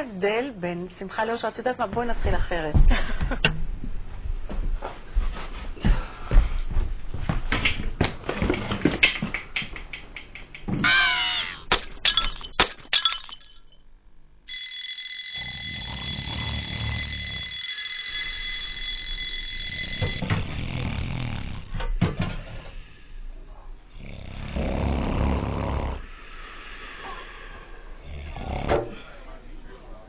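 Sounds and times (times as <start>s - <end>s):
steady alarm tone: 14.5s - 20.7s.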